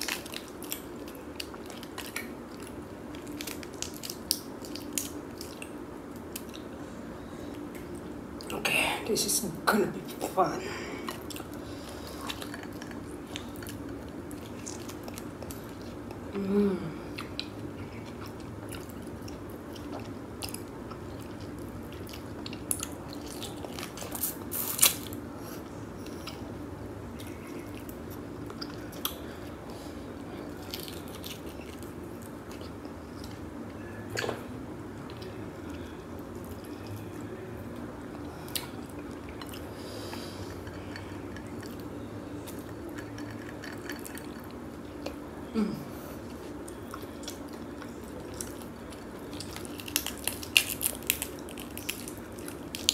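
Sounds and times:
closed-mouth hum: 0.0 - 52.9
crab shell cracking: 48.4 - 52.9.

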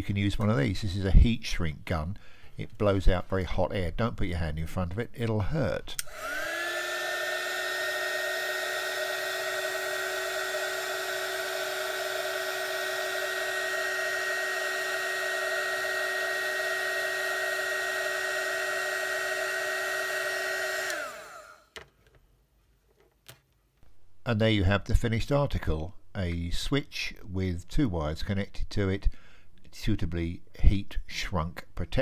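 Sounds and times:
heat gun fan motor whine: 6.0 - 21.7.

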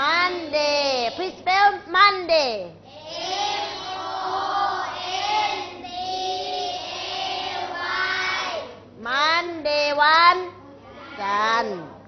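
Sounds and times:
children chanting in unison: 2.9 - 8.8.

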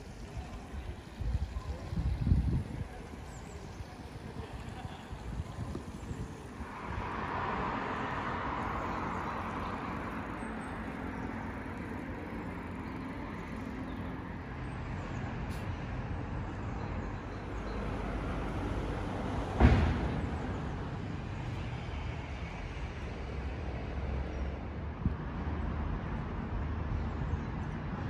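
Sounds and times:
city road traffic hum: 0.0 - 28.0
sharp thump: 19.5 - 20.6.

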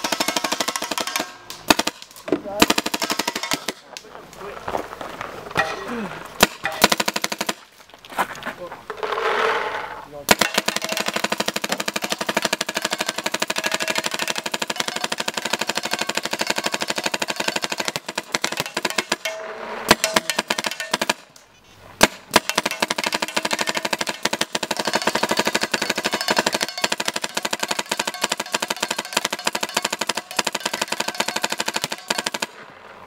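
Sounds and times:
paintball gun rapid fire: 0.0 - 3.8, 6.4 - 7.7, 10.3 - 21.3, 22.0 - 32.6
paintball gun single shots: 22.0 - 32.7.

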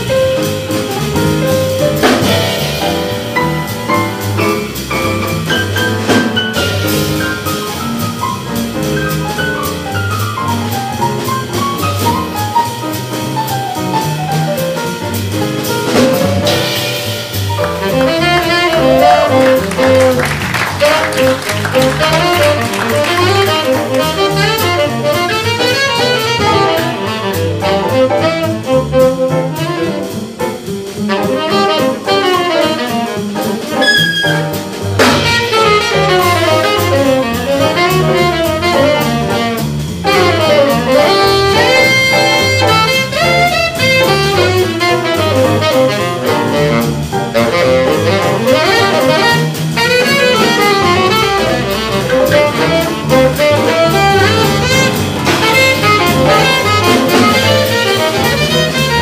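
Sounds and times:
double bass: 0.0 - 59.0
drum kit: 0.0 - 59.0
piano: 0.0 - 59.0
tenor saxophone: 17.6 - 30.0, 33.8 - 34.4, 35.2 - 59.0.

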